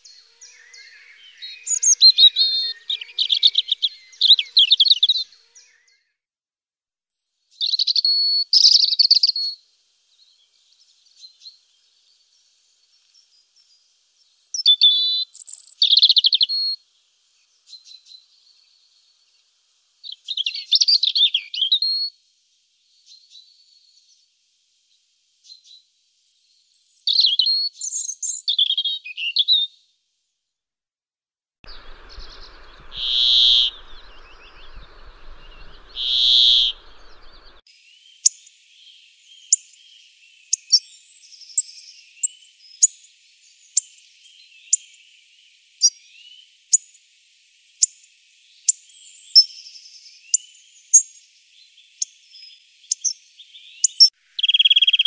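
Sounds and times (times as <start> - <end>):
loud bird calls: 0.0 - 5.7, 31.7 - 37.6
songbirds twittering: 0.0 - 5.9, 31.7 - 55.0
short sharp high bird ticks: 31.7 - 37.6.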